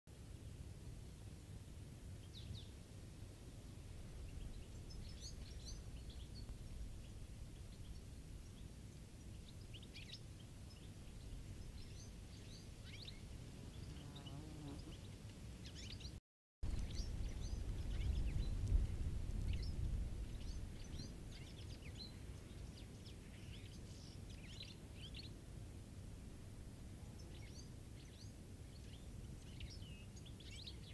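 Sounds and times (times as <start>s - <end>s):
low steady rumble: 16.6s - 21.4s.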